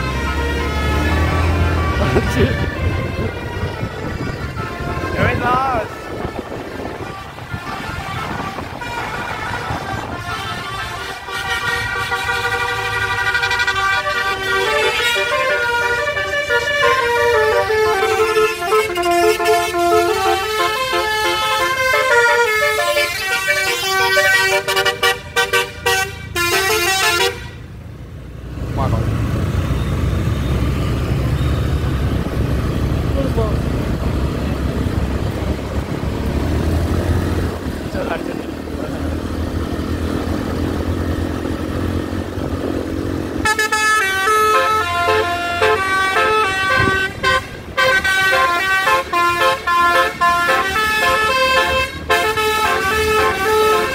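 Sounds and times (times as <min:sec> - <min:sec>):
bus musical horn: 0:00.0 - 0:27.8, 0:43.1 - 0:53.9.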